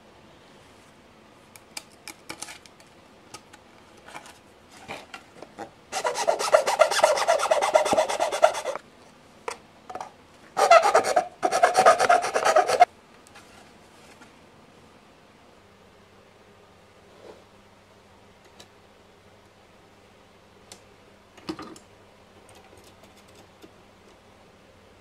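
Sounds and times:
hand file rasping: 6.0s - 8.8s, 10.6s - 12.9s.

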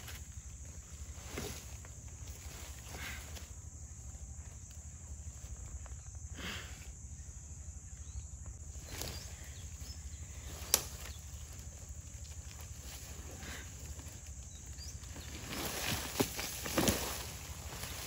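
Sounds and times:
rustling and crunching dry leaves: 8.7s - 18.0s
twig snapping: 10.7s - 11.1s.

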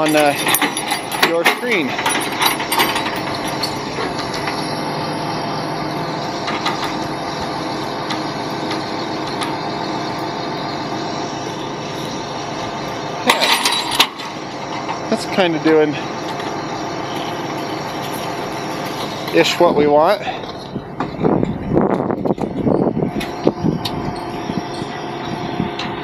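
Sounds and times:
sharp metal clanks: 0.0s - 4.8s, 13.2s - 15.0s
tow truck mechanical drone: 0.0s - 26.0s.

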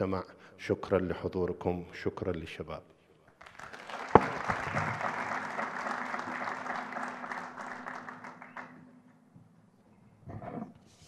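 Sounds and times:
audience applauding: 3.4s - 8.9s.

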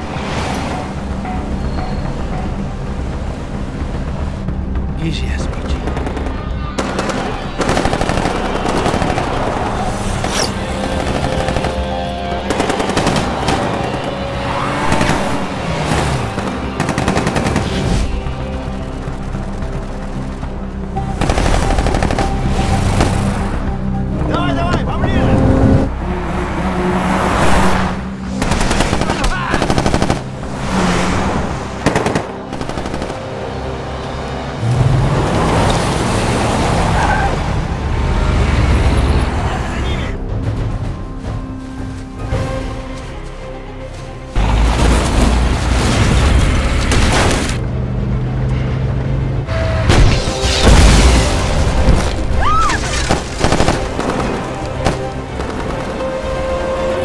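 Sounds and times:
dramatic music score: 0.0s - 57.0s.

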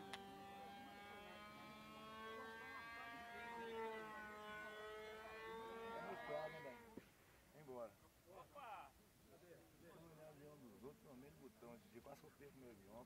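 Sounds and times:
model airplane propeller droning: 0.0s - 7.0s.

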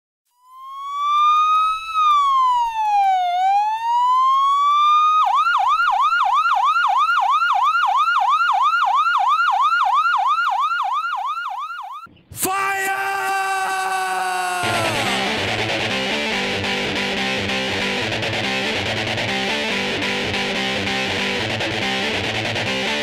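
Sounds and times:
emergency vehicle siren: 0.4s - 12.1s.

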